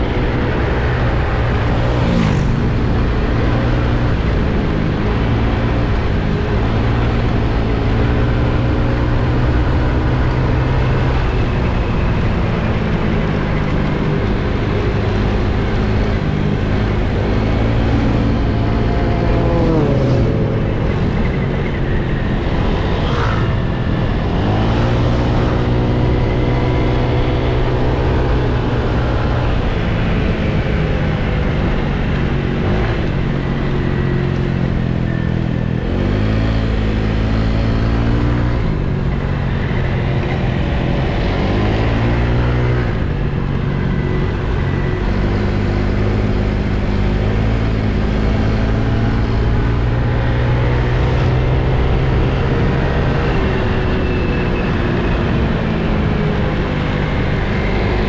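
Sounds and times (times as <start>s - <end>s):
scooter engine running: 0.0s - 5.7s
road noise: 0.0s - 58.0s
wind rush: 10.9s - 37.4s.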